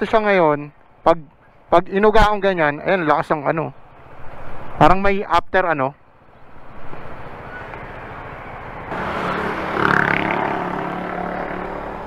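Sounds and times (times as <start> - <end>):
vehicle passing on road: 6.0 - 12.0.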